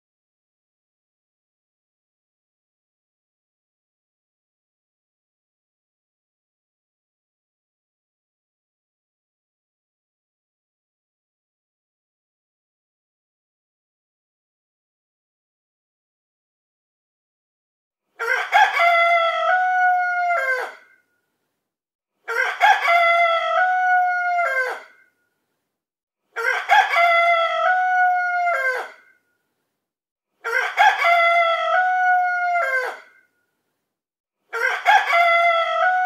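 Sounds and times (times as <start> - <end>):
recorded rooster crow alarm: 18.2 - 21.1, 22.3 - 25.1, 26.4 - 29.2, 30.5 - 33.3, 34.5 - 36.0.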